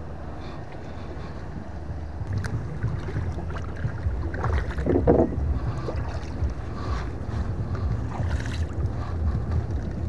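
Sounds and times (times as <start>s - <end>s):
wind rumble on microphone: 0.0s - 10.0s
paddle stroking through water: 2.2s - 10.0s
water splash: 2.3s - 6.4s.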